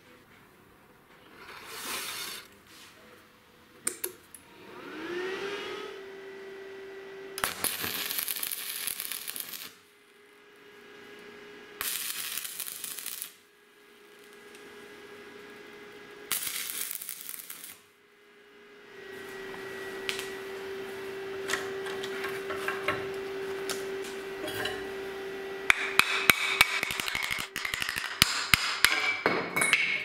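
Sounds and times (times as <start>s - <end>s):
motor humming: 4.4s - 8.4s, 18.4s - 27.4s
welding arc crackling: 7.4s - 18.0s, 19.1s - 28.9s.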